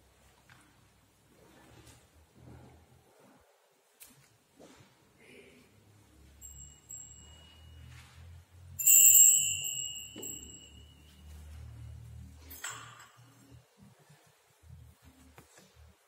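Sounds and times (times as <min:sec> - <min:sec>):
altar bell ringing: 0:06.2 - 0:12.0.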